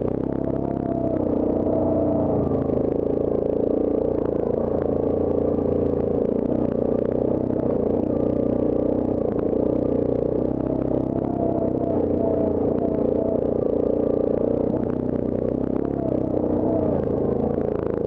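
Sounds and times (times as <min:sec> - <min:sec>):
quad engine running: 0:00.0 - 0:18.0.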